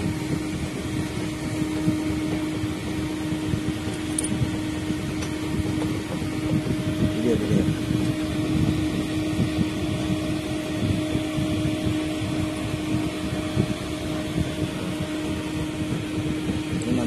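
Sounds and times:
machine humming: 0.0 - 17.0.

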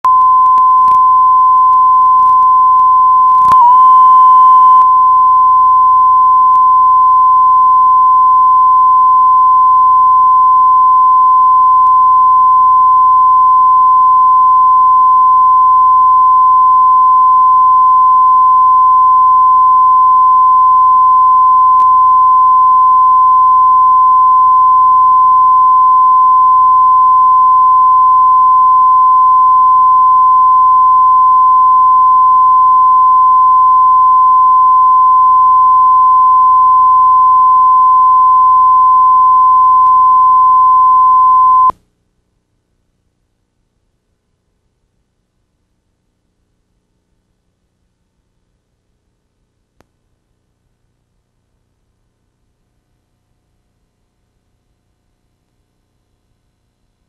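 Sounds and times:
clicks: 0.0 - 1.0, 1.6 - 3.8
high-pitched line-up tone: 0.1 - 14.1, 15.7 - 41.7.

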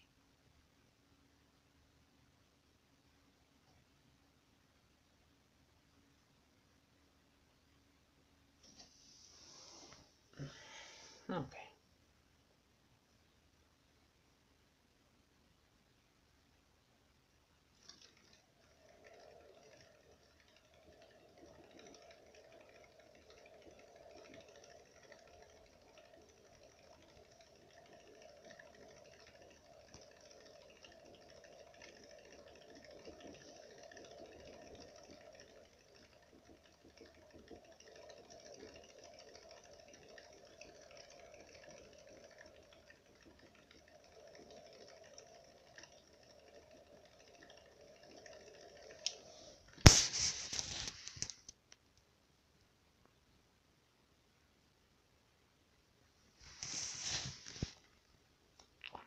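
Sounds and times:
paws tapping on hamster wheel: 17.8 - 51.5.

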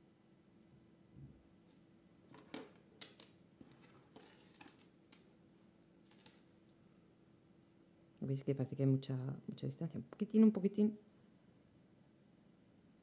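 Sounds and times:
rustle of cords: 3.6 - 6.7.

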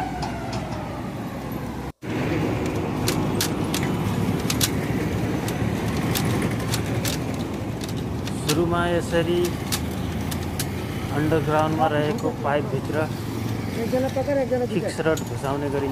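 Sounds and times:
passing vehicles rumble: 0.0 - 15.9
sharp clicks: 2.4 - 12.4.

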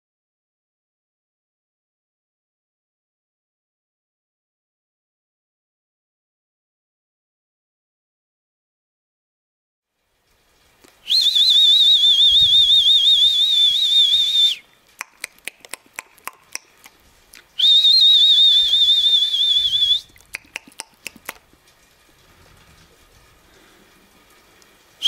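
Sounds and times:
warbling whistle blasts: 11.0 - 14.7, 17.6 - 20.2.

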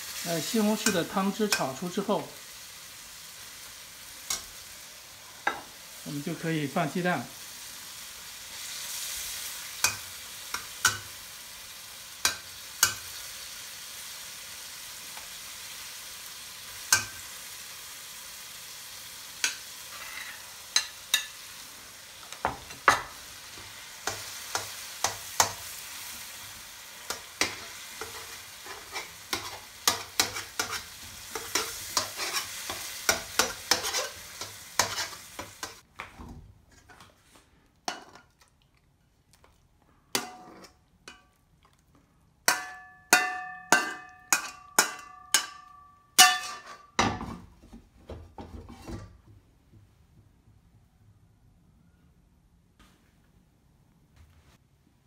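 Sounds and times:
food sizzling in a wok: 0.0 - 35.9
metal spatula scraping a wok: 19.4 - 21.4, 27.1 - 35.8, 40.1 - 40.8, 46.2 - 47.0.

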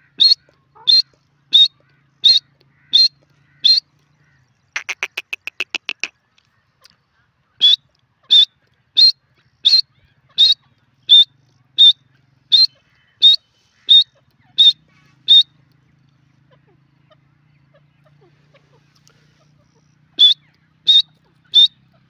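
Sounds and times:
francolin calling: 0.0 - 3.9, 4.8 - 6.1, 7.6 - 15.6, 18.2 - 21.9.

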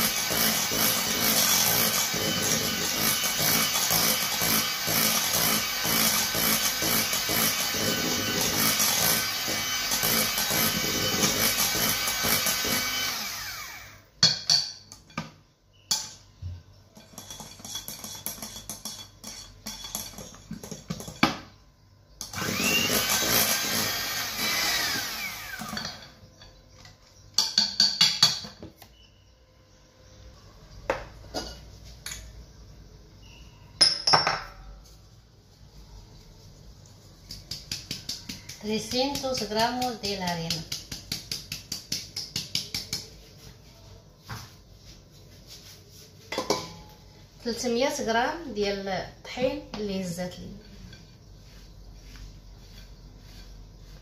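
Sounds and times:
electric hand mixer beating: 0.0 - 14.0, 22.4 - 25.9.

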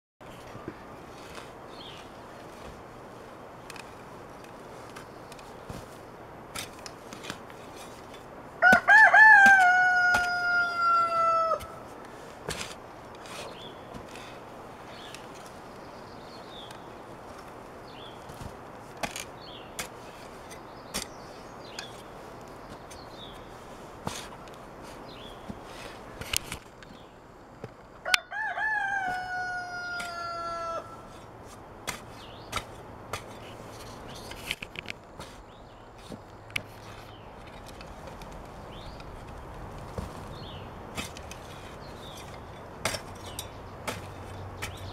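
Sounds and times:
digging fork crunching soil: 0.2 - 27.8, 29.9 - 44.9
small birds chirping: 0.4 - 2.8, 12.9 - 18.5, 19.2 - 26.2, 32.0 - 34.5, 35.1 - 44.9
garden fork breaking soil clods: 18.4 - 21.1
bird chirping: 38.5 - 39.5, 40.2 - 40.8.

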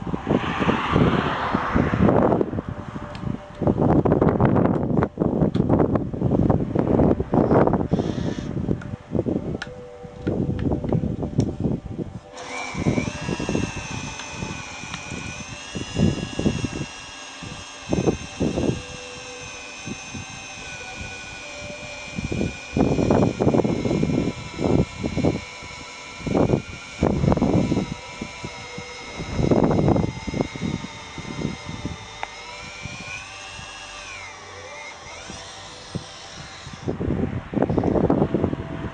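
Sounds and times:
power drill motor whine: 7.4 - 8.6, 12.2 - 37.0.

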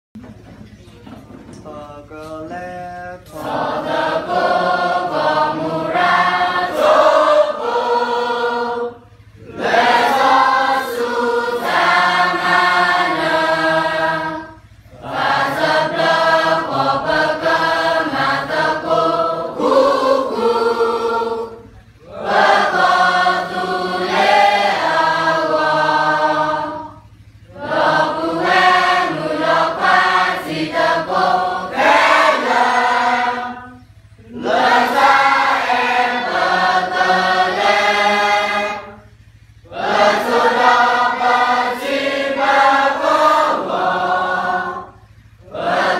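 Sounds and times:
group of students singing: 1.6 - 45.9.

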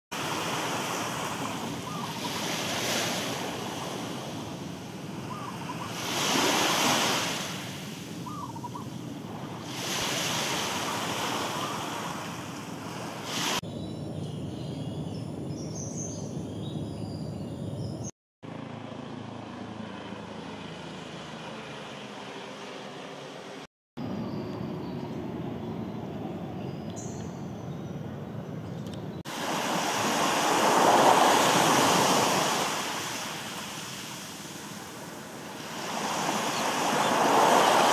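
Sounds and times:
small waves washing onto shore: 0.1 - 8.4, 9.3 - 13.6, 29.3 - 37.9.

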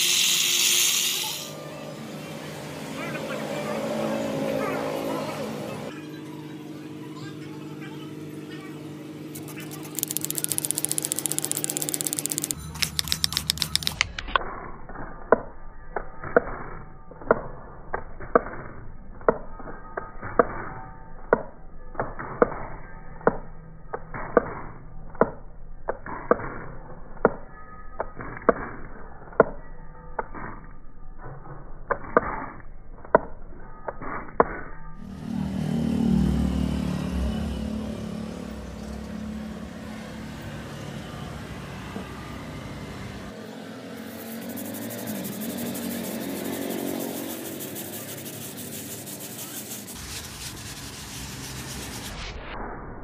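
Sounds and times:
spray bottle hissing sprays: 0.0 - 1.5, 9.4 - 14.2, 44.1 - 52.2
sharp ticking: 9.4 - 14.3.

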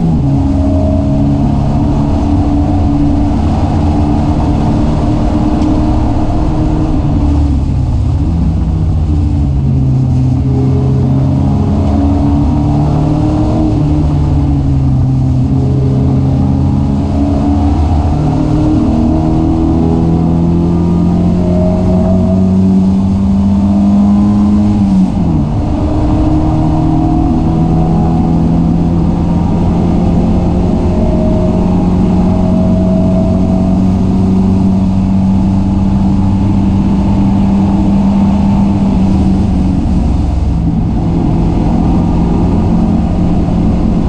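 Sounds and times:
race car engine: 0.0 - 44.0
road and wind rush: 0.0 - 44.0.

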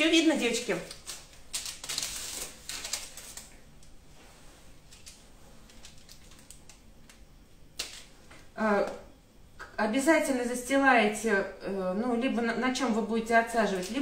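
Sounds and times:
plastic bag crinkling: 0.4 - 3.6, 4.9 - 7.2, 7.8 - 8.2.

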